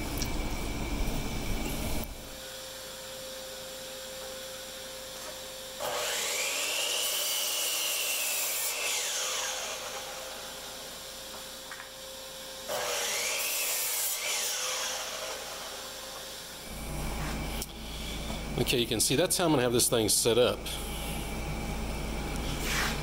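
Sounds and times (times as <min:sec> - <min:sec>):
steady hum: 0:00.0 - 0:03.8, 0:15.0 - 0:23.0
miter saw cutting wood: 0:01.3 - 0:23.0.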